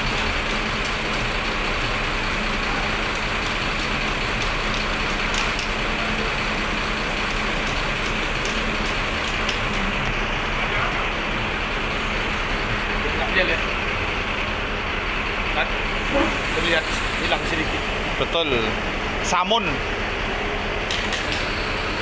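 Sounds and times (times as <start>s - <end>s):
bus engine idling: 0.0s - 22.0s.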